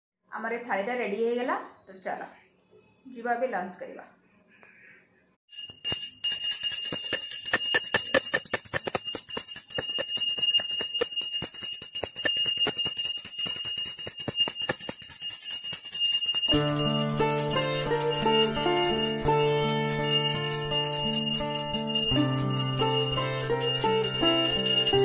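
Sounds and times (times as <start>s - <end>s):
hand bell ringing: 5.5s - 25.0s
background music: 16.5s - 25.0s.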